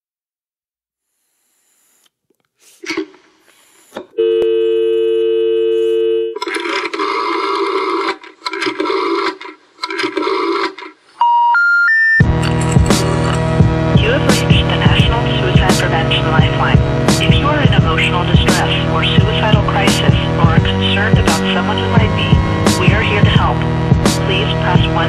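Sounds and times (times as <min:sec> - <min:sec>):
dial tone: 0:04.2 - 0:06.4.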